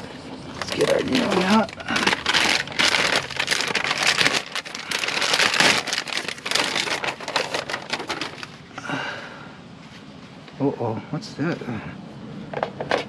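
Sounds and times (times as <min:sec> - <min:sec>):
plastic bag crinkling: 0:00.5 - 0:08.6.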